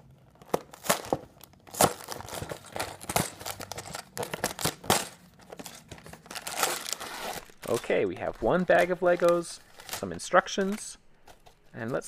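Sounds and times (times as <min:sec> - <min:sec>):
cardboard rustling: 0:00.3 - 0:12.0
cardboard box being torn open: 0:06.2 - 0:07.8.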